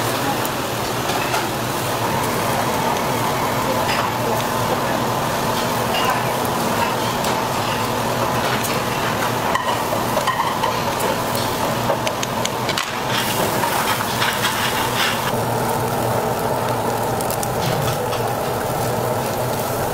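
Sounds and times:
meat sizzling on a charcoal grill: 0:00.0 - 0:19.9.

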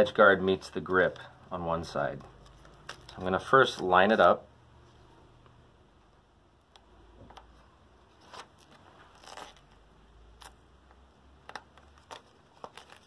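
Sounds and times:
tape scraping and rustling: 0:02.1 - 0:05.0, 0:07.4 - 0:10.6, 0:11.4 - 0:13.0.

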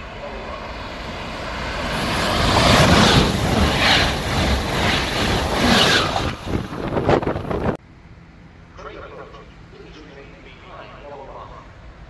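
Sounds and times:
train passing at speed: 0:00.0 - 0:08.8.

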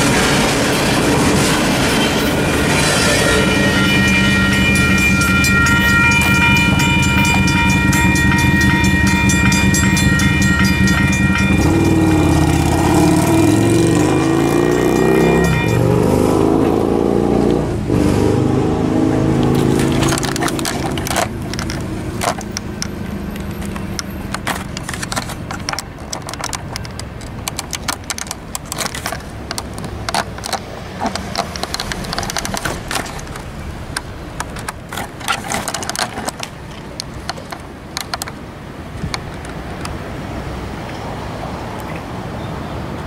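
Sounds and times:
train boxcars rattling on rails: 0:00.0 - 0:17.0, 0:18.9 - 0:40.1
passing car engine: 0:02.3 - 0:25.5
sharp knocks and clicks: 0:04.5 - 0:15.9, 0:19.4 - 0:38.4.

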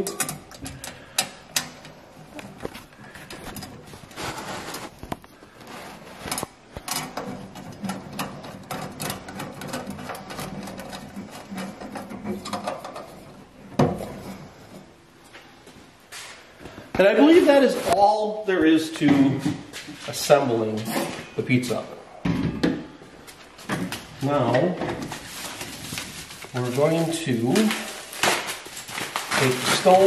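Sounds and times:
metal scraping and clicking: 0:05.7 - 0:13.4.

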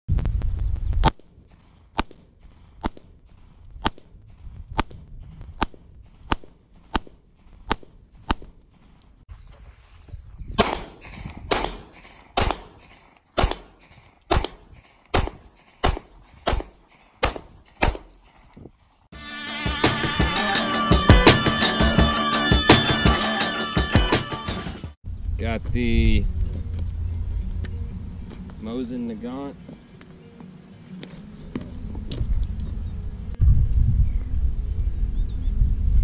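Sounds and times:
pistol shots: 0:10.6 - 0:18.2.

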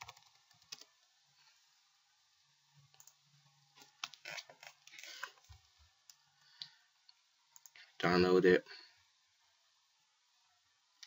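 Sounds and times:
computer keys and mouse clicks: 0:00.0 - 0:00.9, 0:02.9 - 0:03.2.

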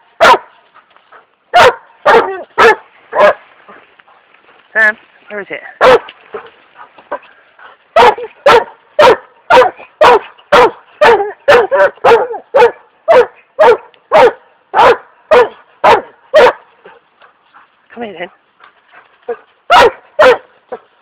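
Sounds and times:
dog barking loudly: 0:00.2 - 0:00.5, 0:01.5 - 0:03.4, 0:05.8 - 0:06.4, 0:07.9 - 0:17.0, 0:19.3 - 0:20.9.

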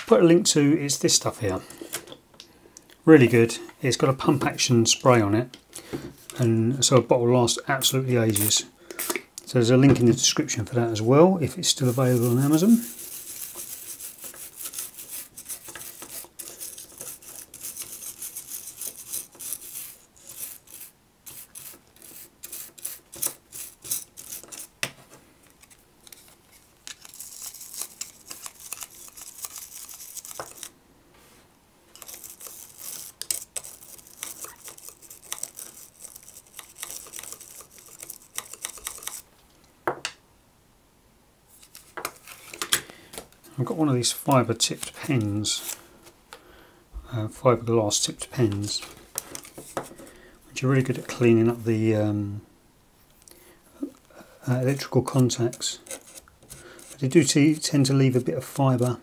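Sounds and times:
toothbrush scrubbing metal contacts: 0:32.0 - 0:39.2.

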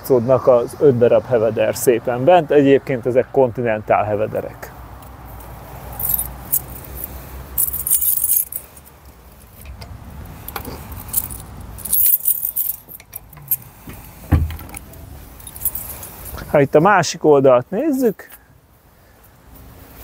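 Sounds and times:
metallic jingling and clinking: 0:05.9 - 0:09.7, 0:10.4 - 0:13.8, 0:14.5 - 0:16.4
dull thump: 0:13.4 - 0:14.8.

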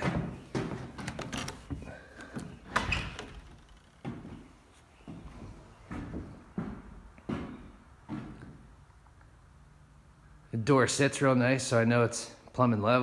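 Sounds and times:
door clicks knocks and thumps: 0:00.0 - 0:03.9.

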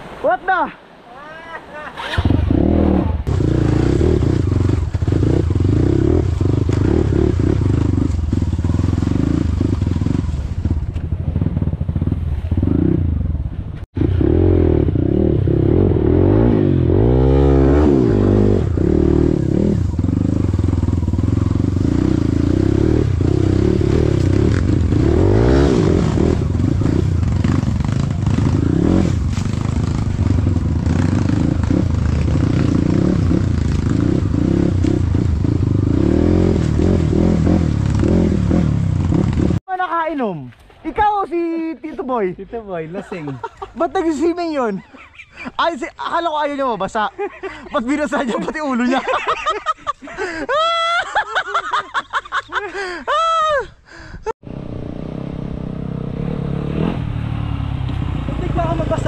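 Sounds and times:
motorcycle engine revving: 0:02.0 - 0:39.7, 0:54.4 - 0:59.0.

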